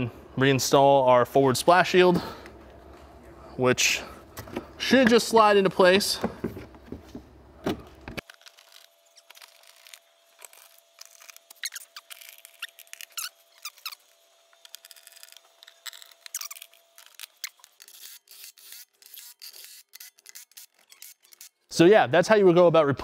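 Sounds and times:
faint steady hum: 0.0 - 19.6
plastic shield squeaking and creaking: 7.7 - 21.7.

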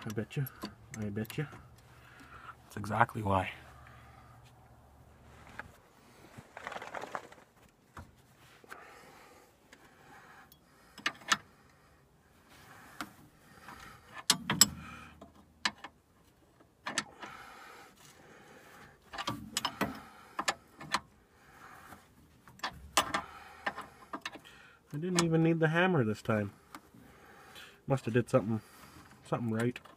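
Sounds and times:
rustling: 4.0 - 8.6
metallic clicks and knocks: 11.0 - 11.5, 13.7 - 16.0, 16.6 - 17.2, 19.1 - 21.1, 22.5 - 25.4.

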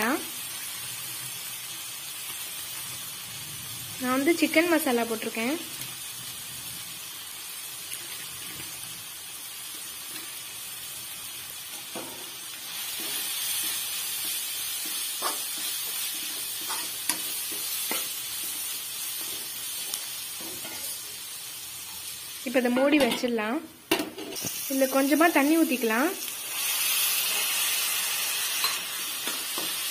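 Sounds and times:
masala sizzling in oil: 0.0 - 29.9
spatula scraping pan: 12.8 - 21.0.

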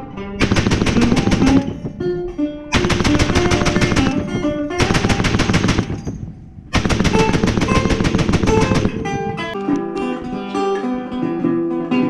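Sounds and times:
machine gun bursts: 0.4 - 2.0, 2.8 - 9.6.

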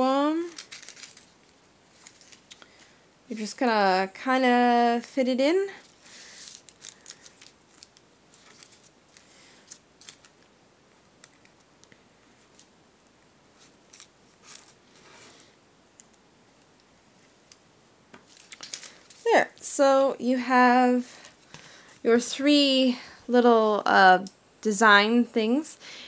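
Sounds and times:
paper rustling: 0.4 - 3.0, 5.8 - 10.5, 13.6 - 15.5, 18.2 - 19.3.

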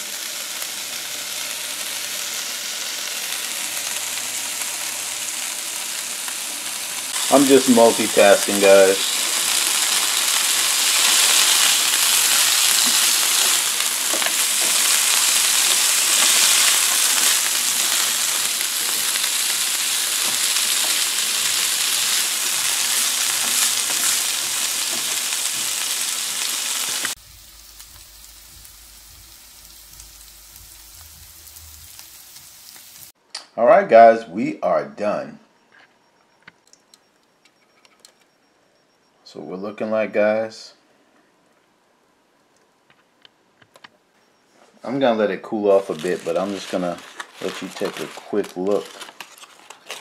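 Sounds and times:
corn kernels sizzling in pan: 0.0 - 33.2, 45.6 - 50.0.

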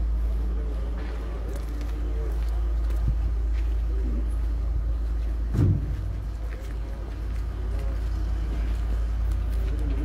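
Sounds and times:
diesel engine rumbling: 0.0 - 10.0
thump: 5.5 - 6.0.

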